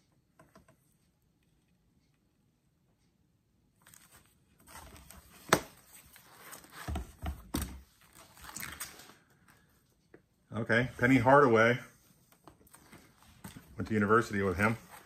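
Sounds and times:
plastic pages rustling: 3.8s - 9.6s.

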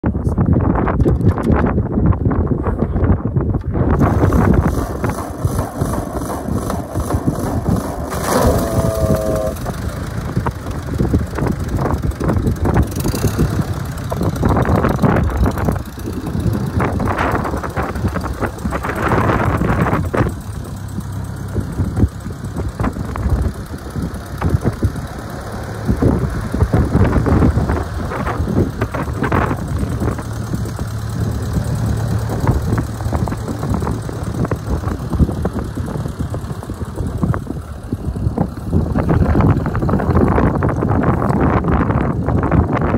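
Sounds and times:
tractor engine idling: 3.8s - 42.9s
short pitched squeal: 8.1s - 9.8s.

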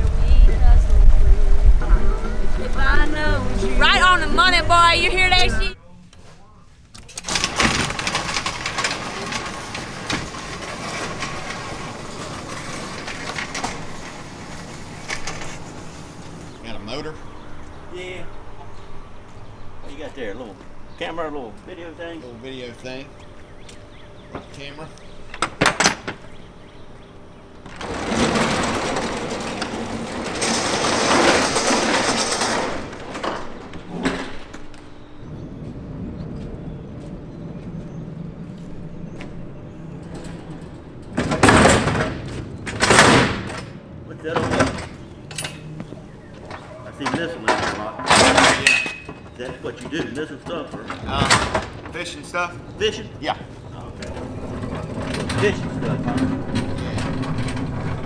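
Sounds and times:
door rattling and clattering: 7.0s - 16.6s, 25.3s - 34.9s, 39.9s - 58.0s
overhead door motor running: 7.1s - 58.0s.

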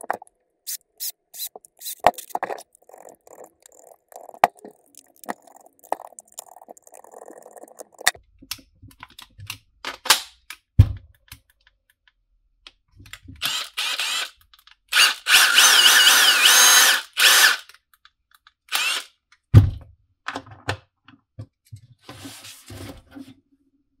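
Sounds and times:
impact driver running: 15.0s - 17.6s.

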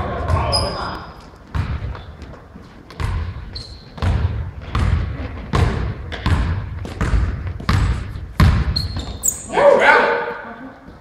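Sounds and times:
basketball bouncing on hardwood: 1.5s - 9.3s
short high squeak: 8.8s - 9.6s.

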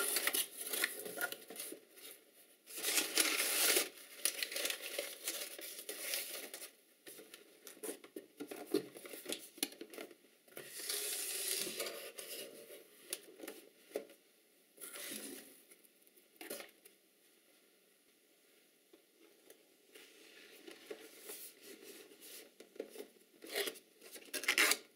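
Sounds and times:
packing paper crinkling: 0.0s - 6.7s.

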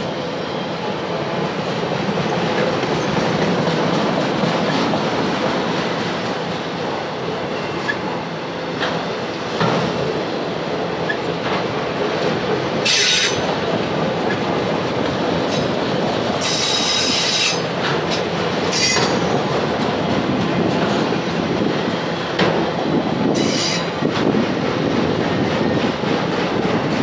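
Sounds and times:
steel wheels rumbling on rail: 0.0s - 27.0s
high-pitched wheel squeals: 18.7s - 19.5s, 23.4s - 24.0s.

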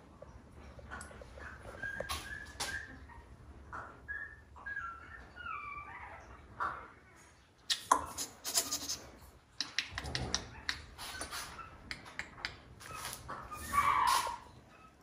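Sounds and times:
quick irregular clicks and smacks: 9.5s - 12.9s.

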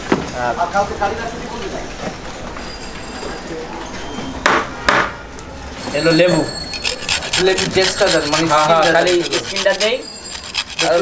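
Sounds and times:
quick scraping and rubbing strokes: 6.7s - 11.0s.

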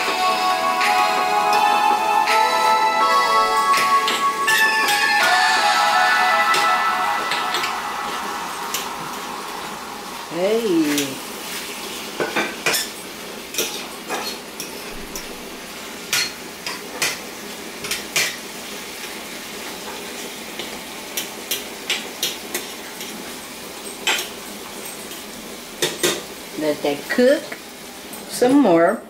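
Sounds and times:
food sizzling: 0.0s - 28.8s.

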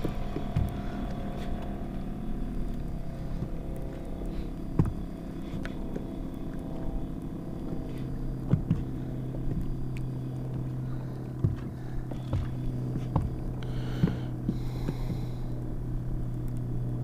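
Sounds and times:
boat motor humming: 0.0s - 17.0s
deep steady tone: 0.0s - 17.0s.

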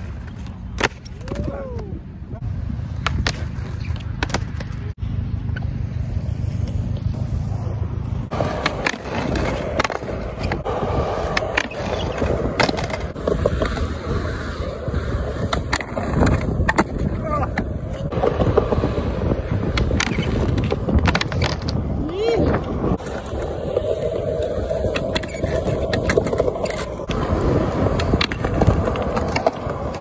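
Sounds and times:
skateboard wheels rolling on concrete: 0.0s - 30.0s
skateboard deck clacks: 3.0s - 4.8s, 8.3s - 13.9s
skateboard scraping concrete ledge: 6.0s - 30.0s.

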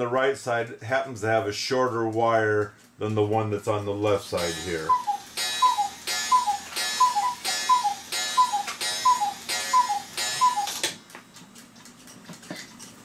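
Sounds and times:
cuckoo clock calling: 4.3s - 11.0s.

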